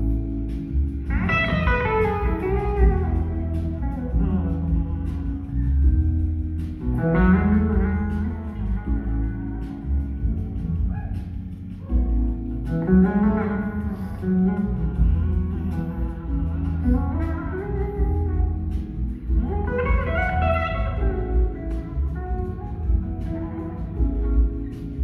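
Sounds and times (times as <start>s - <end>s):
drums: 0.0s - 25.0s
electric slide guitar: 0.0s - 25.0s
heavy boomy bass: 0.0s - 25.0s.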